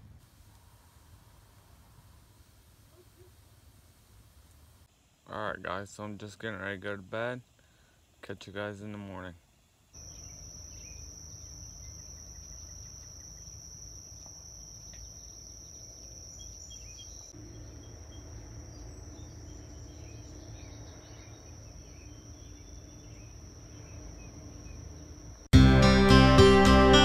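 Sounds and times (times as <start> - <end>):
insects trilling: 0.8 - 25.5
faint bird chirps: 9.3 - 25.5.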